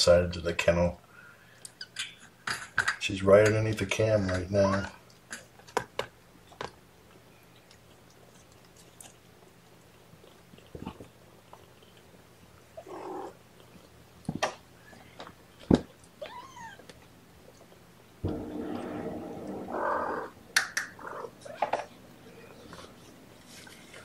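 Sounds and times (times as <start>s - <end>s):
kittens mewing: 18.3s - 22.9s.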